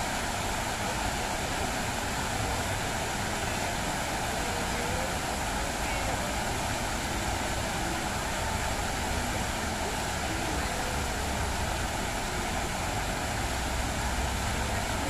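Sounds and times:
fountain water splashing: 0.0 - 15.0.

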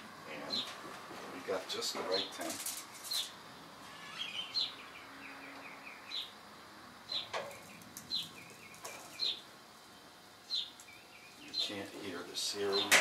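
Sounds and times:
faint steady hiss: 0.0 - 13.0
small bird chirping and twittering: 3.0 - 6.4, 7.1 - 12.0.

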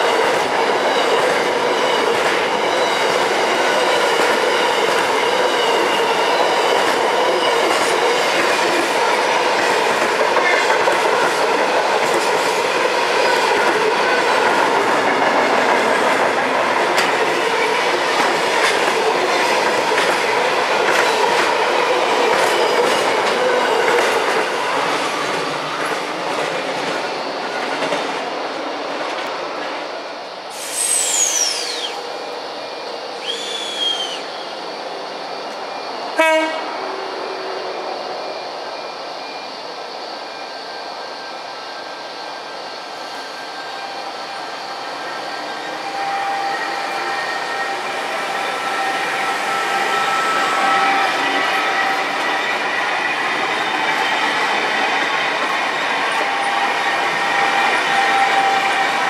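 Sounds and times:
train wheels rumbling on rail: 0.0 - 59.0
high falling whistle: 30.5 - 35.9
wheel squeal: 30.6 - 32.1, 43.2 - 54.2
short high call: 33.2 - 34.4.

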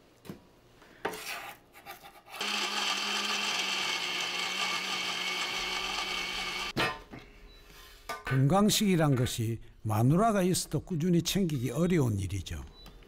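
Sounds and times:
electric blender running: 2.4 - 6.7.

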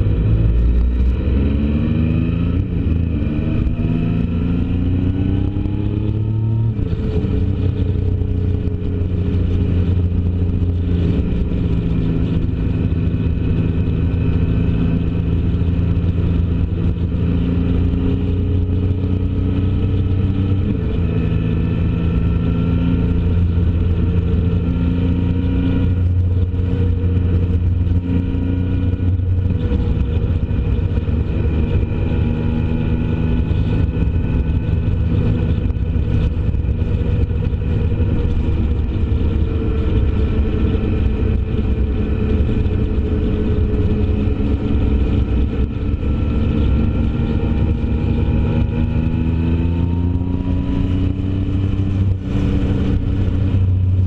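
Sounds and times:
road and wind noise: 0.0 - 54.0
vehicle engine running: 0.0 - 54.0.

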